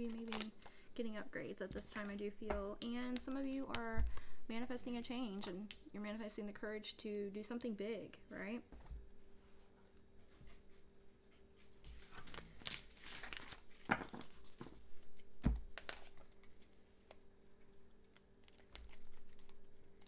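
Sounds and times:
cards rustling and shuffling: 0.0 - 3.8, 11.6 - 17.3, 17.9 - 20.0
cards tapping down: 13.4 - 16.2.

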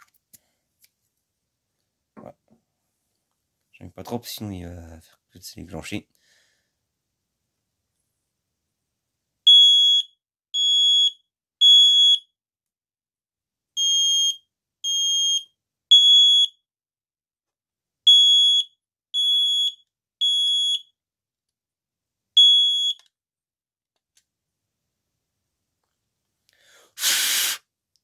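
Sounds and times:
smoke alarm beeping: 9.5 - 12.3, 13.8 - 16.6, 18.1 - 21.0, 22.4 - 23.1.

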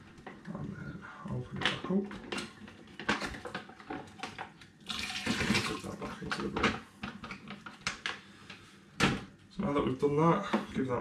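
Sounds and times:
water pouring into plastic bucket: 4.8 - 6.3.

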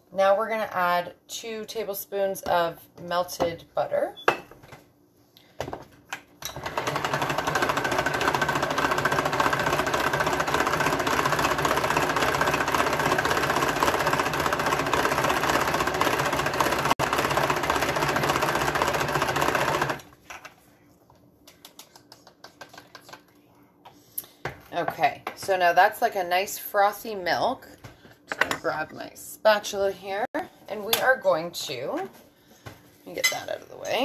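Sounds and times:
hand-cranked mixer whirring: 6.4 - 20.1.

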